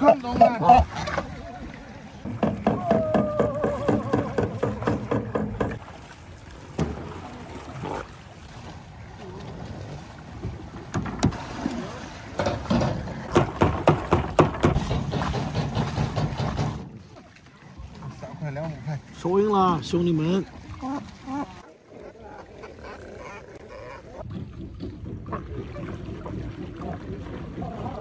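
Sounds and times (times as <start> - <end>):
water splashing: 0.0 - 28.0
knocks on fishing boat: 2.3 - 5.8, 12.4 - 16.9.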